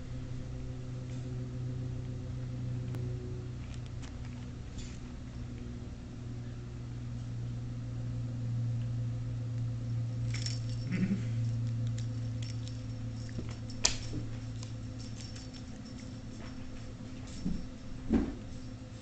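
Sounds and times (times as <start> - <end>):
steady low hum: 0.0 - 19.0
toy clicks and rattles: 10.3 - 16.3.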